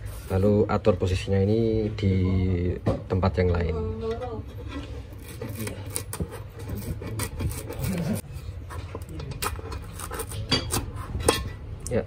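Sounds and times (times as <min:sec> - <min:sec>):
pry tool scraping metal: 0:04.6 - 0:11.5.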